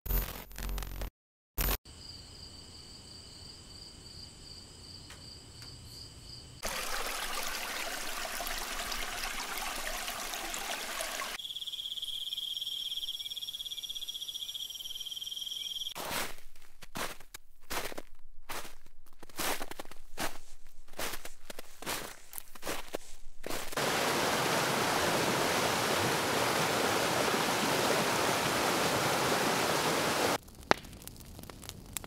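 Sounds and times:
rocky stream rushing: 6.6s - 11.4s, 23.8s - 30.4s
high insect trill: 11.2s - 16.0s
high pulsing insect chorus: 11.2s - 16.0s
footsteps on woodland path: 16.0s - 28.8s.

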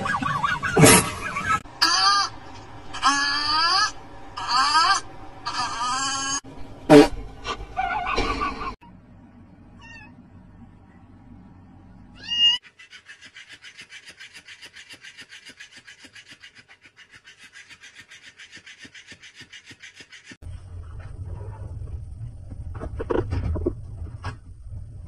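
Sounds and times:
high rising animal cry: 0.0s - 6.5s, 7.7s - 9.0s.

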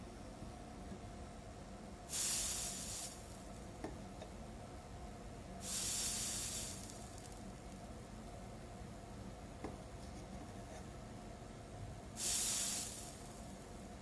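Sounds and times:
soldering paste sizzling: 2.1s - 3.5s, 5.6s - 7.6s, 12.2s - 13.8s.

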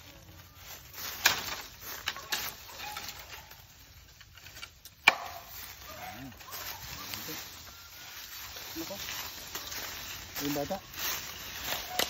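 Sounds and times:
knife striking bamboo: 1.1s - 3.4s, 4.4s - 5.6s
bird calling: 5.6s - 12.0s.

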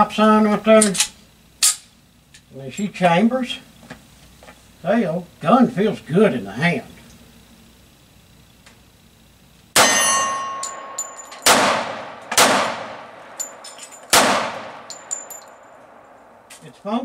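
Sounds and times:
light metallic tinks: 9.8s - 11.6s, 13.0s - 16.7s
pistol shots: 9.8s - 15.0s.

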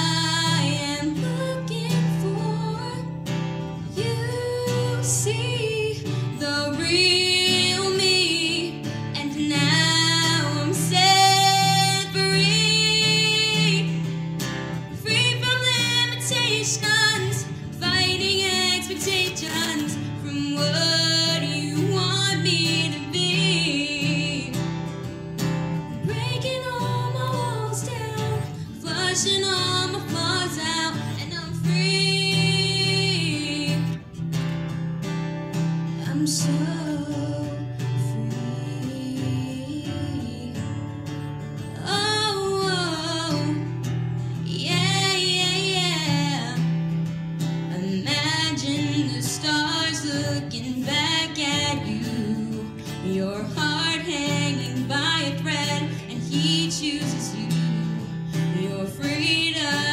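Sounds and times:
woman singing slow song: 0.0s - 34.2s, 35.8s - 59.9s.

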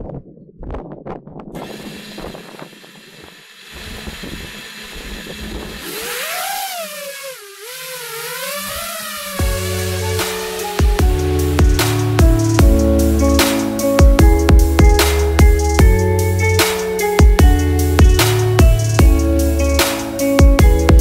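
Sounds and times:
quadcopter motors whining: 1.6s - 12.6s
electronic music: 7.6s - 21.0s.

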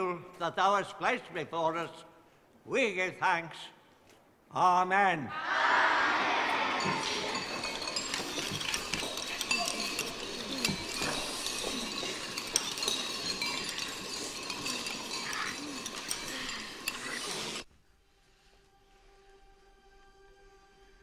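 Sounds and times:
background hubbub: 5.4s - 17.6s
spoons clinking against bowls: 6.7s - 17.7s.

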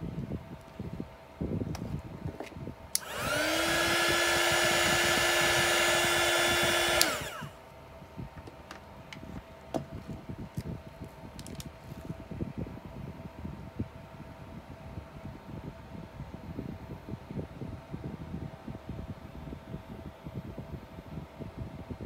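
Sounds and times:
hot-air blower motor whine: 0.0s - 22.0s.

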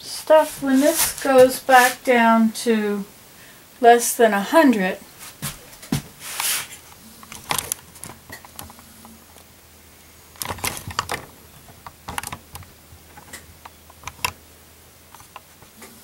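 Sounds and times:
brief hiss: 6.2s - 6.8s.

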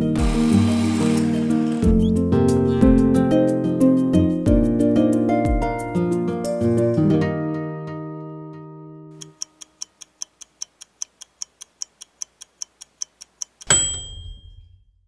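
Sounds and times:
clock-like ticking: 9.2s - 14.1s
loud bell ding: 13.7s - 14.9s.

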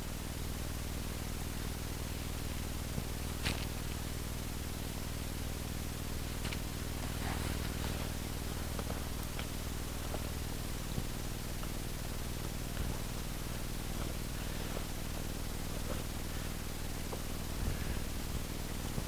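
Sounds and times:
low steady hiss: 0.0s - 19.0s
boot clicks and rustles: 3.4s - 3.9s
cloth bag rustling: 6.4s - 9.1s.

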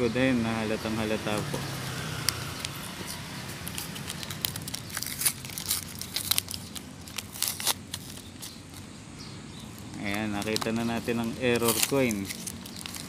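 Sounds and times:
paper and plastic tape crinkling: 2.3s - 9.0s, 9.6s - 13.0s.

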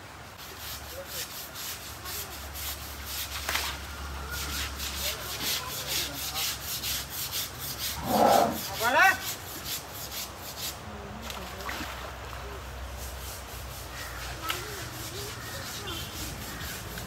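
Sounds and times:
scrubbing on wet hide: 0.4s - 10.8s.

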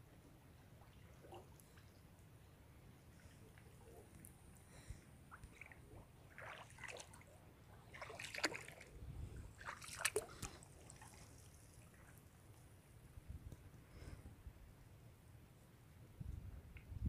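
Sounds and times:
pond water splashing and trickling: 5.3s - 12.4s.

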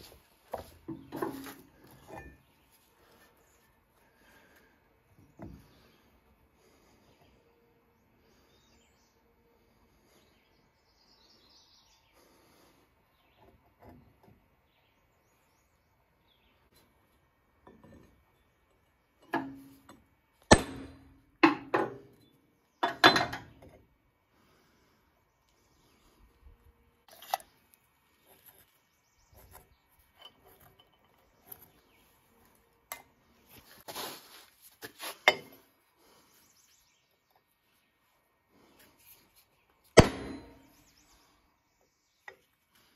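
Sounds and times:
metal clanks and knocks: 22.8s - 23.6s, 40.0s - 40.7s.

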